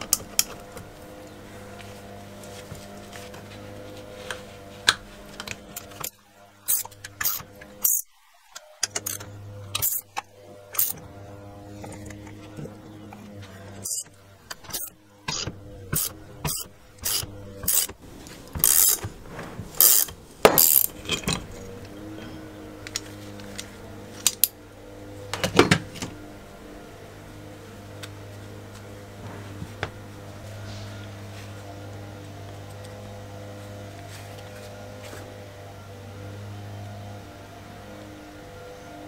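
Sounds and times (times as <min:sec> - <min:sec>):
metallic clicks and creaks: 0:08.6 - 0:11.0, 0:11.7 - 0:18.0.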